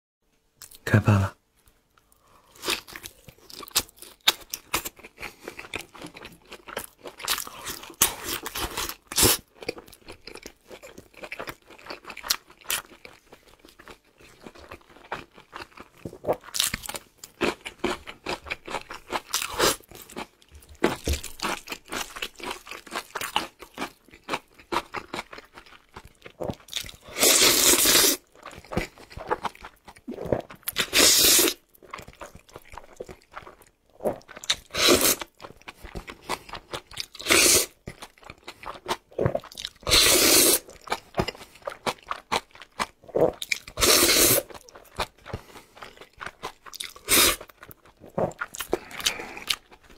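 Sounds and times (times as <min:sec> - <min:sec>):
crunching and chewing: 0:02.0 - 0:49.9
slurping noodles: 0:27.1 - 0:28.2, 0:30.1 - 0:31.6, 0:34.1 - 0:35.3, 0:37.2 - 0:37.8, 0:39.8 - 0:40.7, 0:43.1 - 0:44.5, 0:47.0 - 0:47.5.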